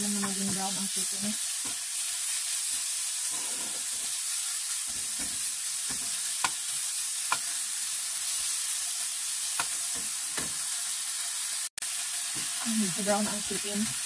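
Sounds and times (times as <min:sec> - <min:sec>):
meat sizzling in a skillet: 0:00.0 - 0:14.0
spatula clicking against pan: 0:07.3 - 0:07.5.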